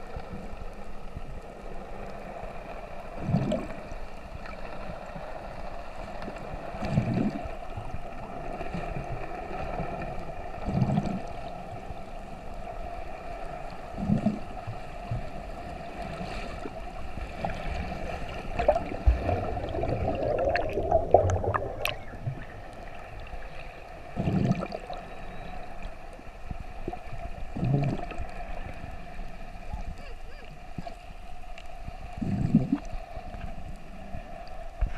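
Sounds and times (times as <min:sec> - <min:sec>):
low underwater whooshing: 0:00.0 - 0:29.7
underwater boat engine hum: 0:00.0 - 0:34.9
fins kicking bubbling and splashing: 0:18.3 - 0:22.6, 0:24.2 - 0:24.9.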